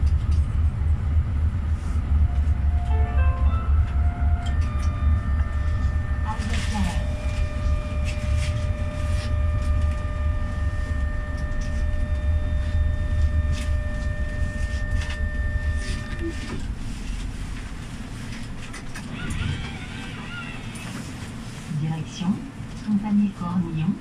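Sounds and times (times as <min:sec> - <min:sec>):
electric traction whine: 0:00.0 - 0:16.8
rumble of wheels on rail: 0:00.0 - 0:24.0.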